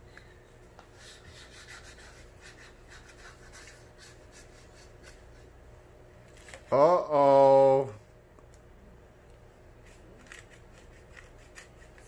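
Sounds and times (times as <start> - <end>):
marker scribbling on whiteboard: 0.9 - 5.5, 9.9 - 12.0.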